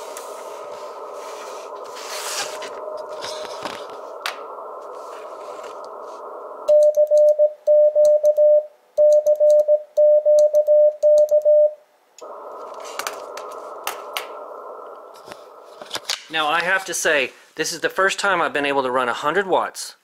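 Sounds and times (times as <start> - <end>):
radio static hiss: 0.0 - 6.8, 12.2 - 19.2
morse code tone: 6.7 - 11.8.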